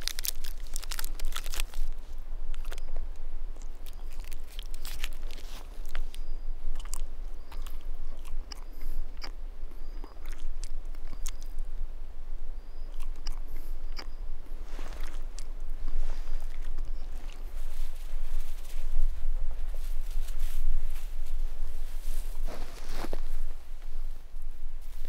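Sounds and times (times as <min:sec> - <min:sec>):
person chewing crunchily: 0:00.0 - 0:11.7, 0:12.9 - 0:18.0.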